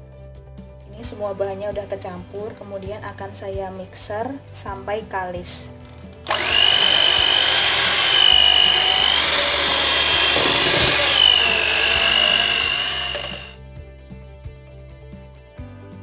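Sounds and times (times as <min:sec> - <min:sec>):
hand mixer motor whine: 0:06.3 - 0:13.6.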